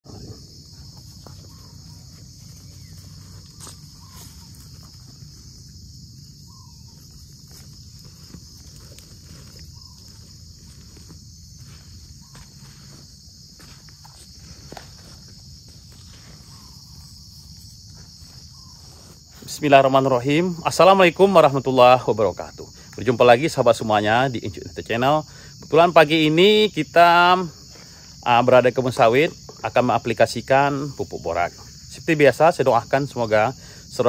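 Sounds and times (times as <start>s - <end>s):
high-pitched insect chorus: 0.0s - 34.0s
footsteps crunching on dry leaves: 0.9s - 19.8s.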